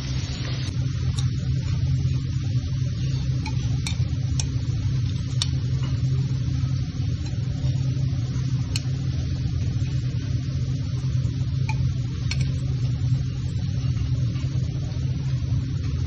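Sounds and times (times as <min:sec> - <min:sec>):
kitchen equipment humming: 0:00.0 - 0:16.0.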